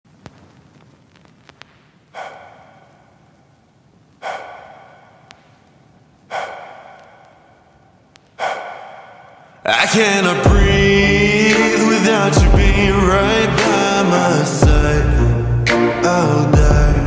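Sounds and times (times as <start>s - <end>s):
faint clicks: 0.2s - 3.0s, 4.1s - 8.7s.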